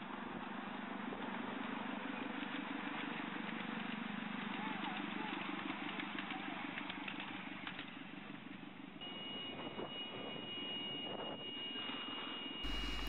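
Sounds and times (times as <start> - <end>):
miniature train rumbling: 0.0 - 8.8.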